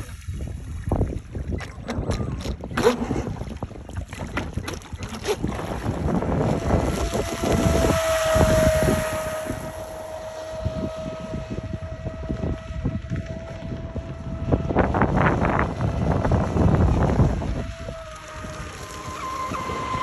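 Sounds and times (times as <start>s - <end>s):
wind noise on microphone: 0.0s - 20.0s
electric motor whining: 5.2s - 20.0s.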